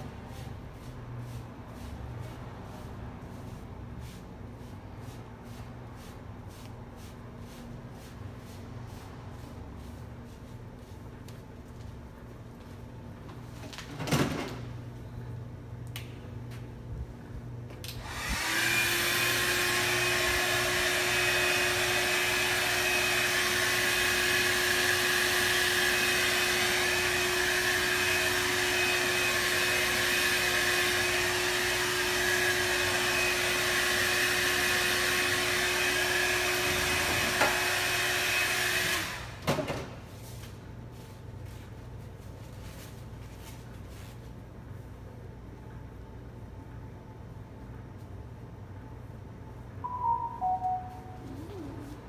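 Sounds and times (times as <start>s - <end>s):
hair dryer blowing: 17.9s - 39.4s.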